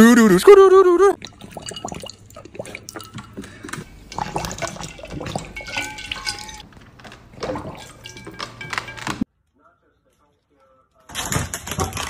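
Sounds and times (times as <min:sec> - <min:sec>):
dog lapping water: 0:01.2 - 0:06.6, 0:07.3 - 0:08.4.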